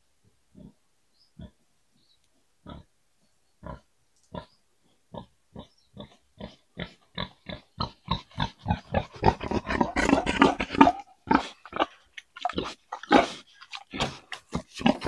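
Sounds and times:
wild boar grunting: 0:05.2 - 0:15.0.

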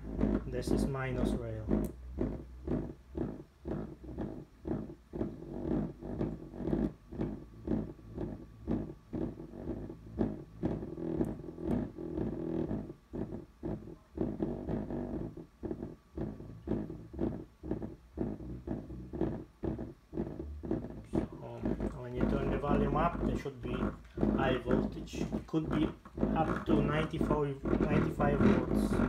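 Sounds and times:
low pulsing signal from speaker: 0:00.0 - 0:29.0.

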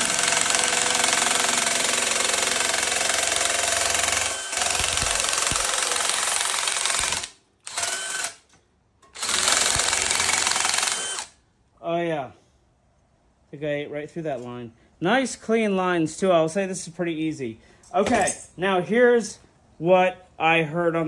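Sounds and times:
drill nibbler punching sheet metal: 0:00.0 - 0:11.4.

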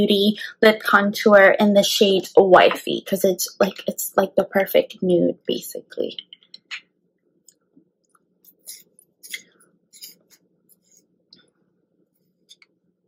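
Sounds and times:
soft mouth sounds: 0:08.4 - 0:11.0.

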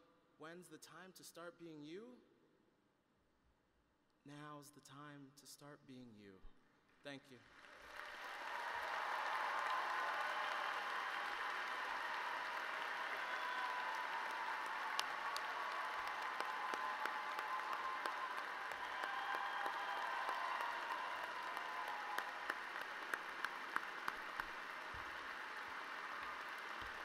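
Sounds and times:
crowd applauding: 0:07.4 - 0:27.0.

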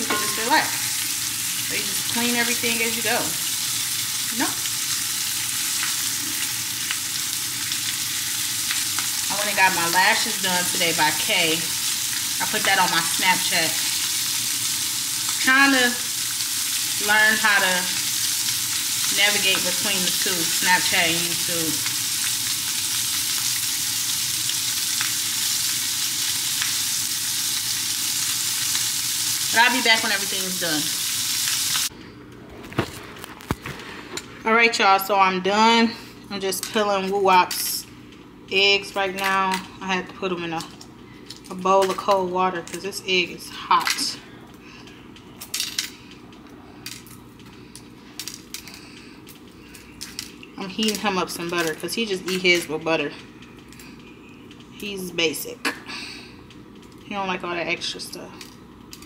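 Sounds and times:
spoon tapping a pan: 0:00.0 - 0:00.6
sauce sizzling in a pan: 0:00.0 - 0:31.9.

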